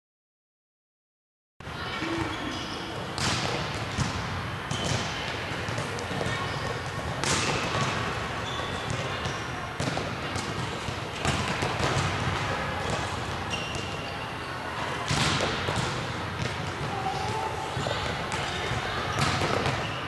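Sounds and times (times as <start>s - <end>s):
balls hitting the floor: 3.2s - 14.0s, 15.0s - 19.9s.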